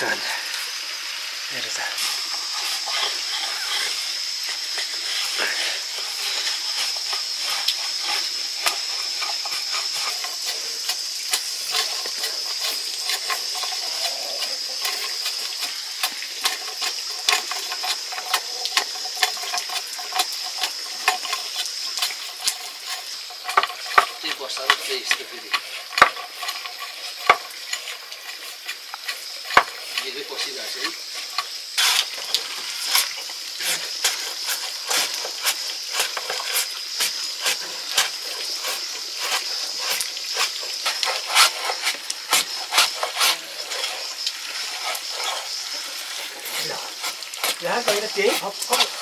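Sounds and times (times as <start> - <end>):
food sizzling in a pan: 0.0 - 49.0.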